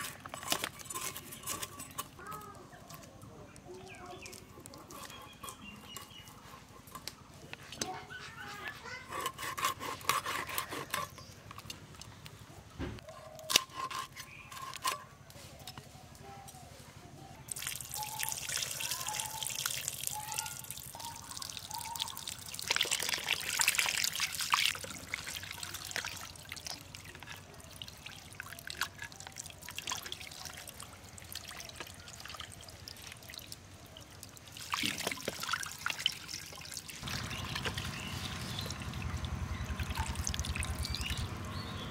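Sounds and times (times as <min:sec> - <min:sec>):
knife scraping fish: 0:08.7 - 0:11.4, 0:13.1 - 0:15.1.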